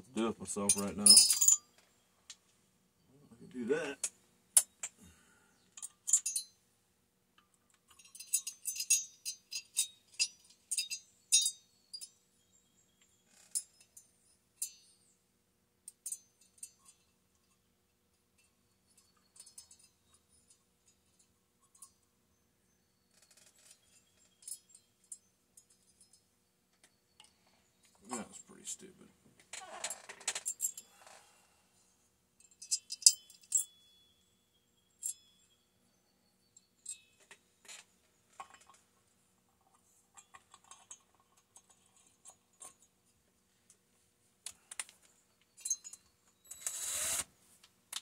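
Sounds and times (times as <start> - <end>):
metal tools clinking and rattling: 0.5 - 1.8, 5.8 - 6.6, 7.8 - 12.1, 18.9 - 22.0, 32.4 - 33.9, 36.8 - 42.9, 44.5 - 46.7.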